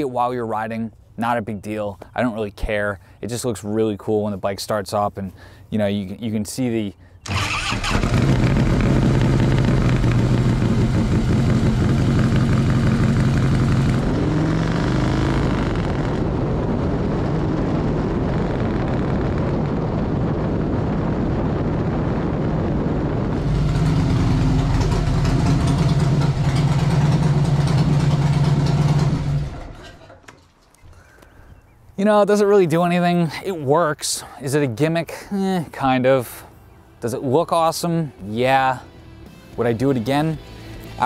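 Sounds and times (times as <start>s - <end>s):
motorcycle engine running loud: 7.9s - 19.4s, 23.3s - 29.8s.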